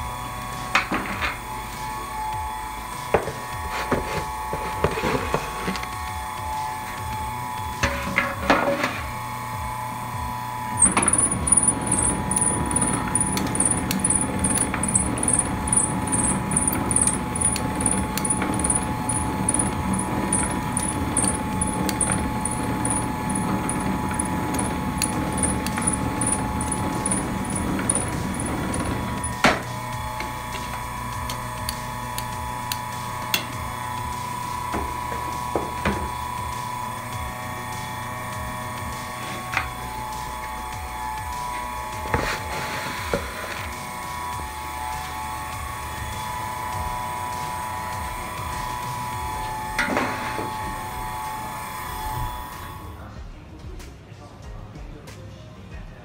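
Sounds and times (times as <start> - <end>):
machine hum: 0.0 - 53.0
machine ticking: 10.8 - 29.4.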